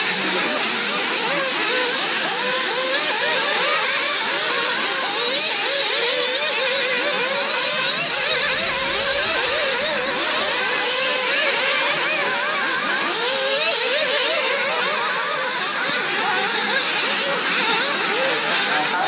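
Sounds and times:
model car engines revving: 0.0s - 19.0s.

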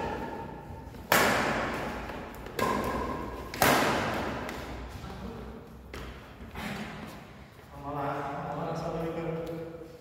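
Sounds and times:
rackets hitting shuttlecock: 0.0s - 5.0s.

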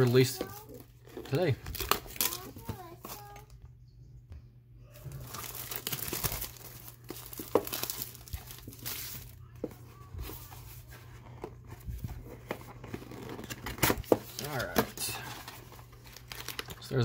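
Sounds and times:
plastic wrap crinkling: 5.0s - 9.4s, 12.8s - 17.0s.

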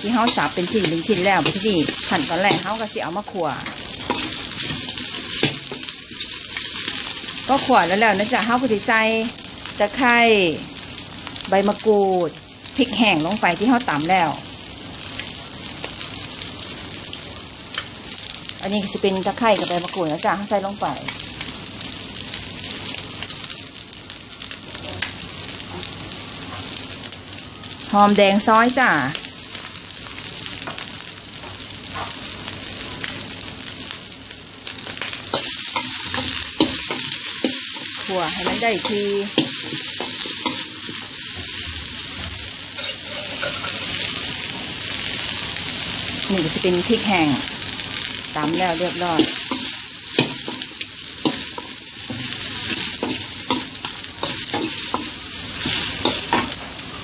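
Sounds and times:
food sizzling in a wok: 0.0s - 57.0s
metal spatula scraping wok: 42.2s - 44.2s.

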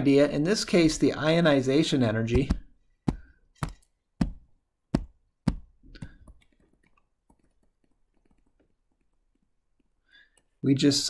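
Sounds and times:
stylus tapping on tablet screen: 2.3s - 9.9s.

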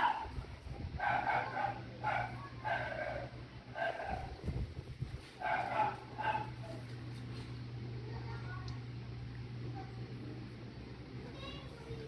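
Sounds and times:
dog barking high-pitched: 0.0s - 0.4s, 1.0s - 4.3s, 5.4s - 6.8s.

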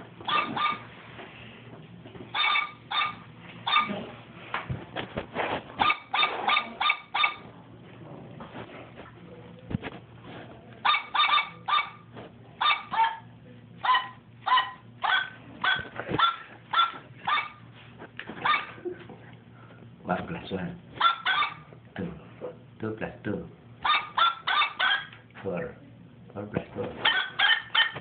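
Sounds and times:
dog barks in a tune: 0.3s - 0.8s, 2.4s - 3.9s, 5.8s - 7.4s, 10.8s - 12.0s, 12.6s - 17.6s, 21.0s - 21.7s, 23.8s - 25.1s, 27.0s - 28.0s.

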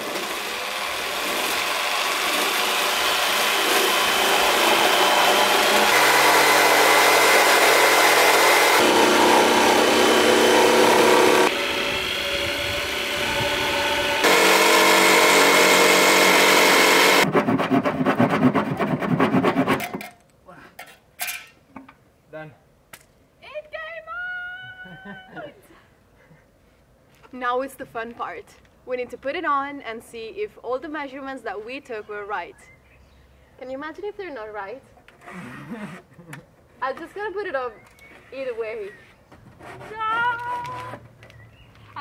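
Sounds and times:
jigsaw sawing through wood: 0.0s - 19.8s.

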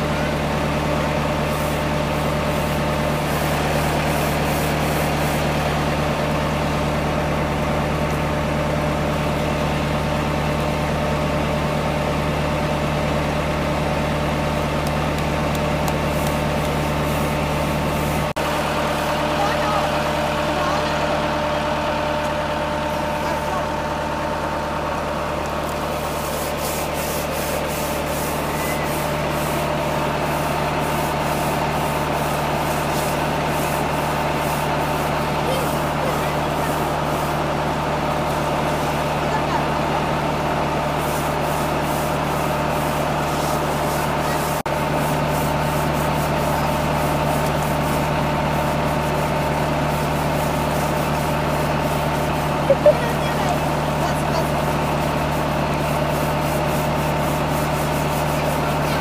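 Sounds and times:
pump humming: 0.0s - 59.0s
brush scrubbing woven surface: 1.4s - 6.4s, 15.4s - 18.4s, 25.4s - 39.5s, 40.7s - 59.0s.

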